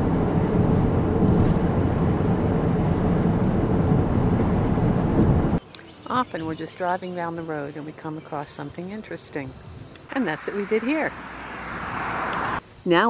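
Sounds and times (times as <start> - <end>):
car rumbling through tunnel: 0.0 - 5.6, 9.9 - 12.6.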